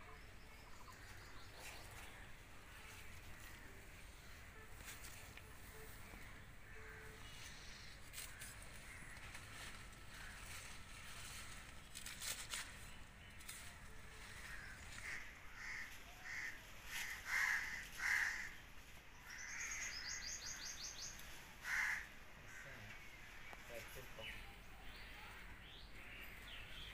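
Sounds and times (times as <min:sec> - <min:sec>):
leafy stalks rustling and crackling: 0:00.9 - 0:26.9
crow cawing: 0:14.3 - 0:18.6, 0:19.3 - 0:20.7, 0:21.6 - 0:23.1.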